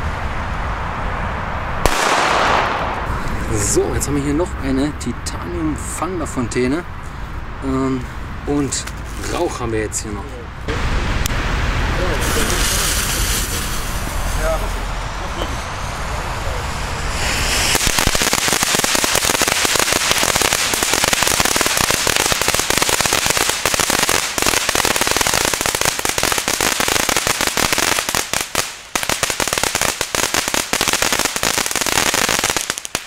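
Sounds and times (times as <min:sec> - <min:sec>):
firework fountain crackling: 0:00.0 - 0:04.9, 0:10.7 - 0:33.0.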